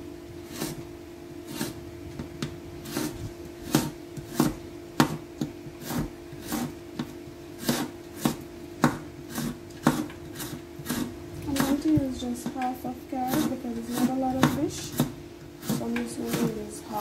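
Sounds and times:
knife chopping carrot on board: 0:03.7 - 0:16.6.

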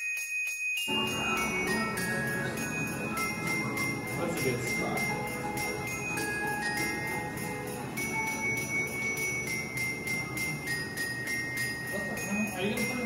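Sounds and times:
bell-like melody: 0:00.0 - 0:13.0
jingle bells shaken: 0:00.0 - 0:13.0.

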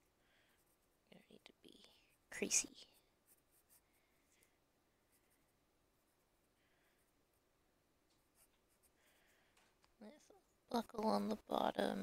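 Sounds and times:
pencil scratching on paper: 0:00.0 - 0:04.4, 0:08.2 - 0:09.4.

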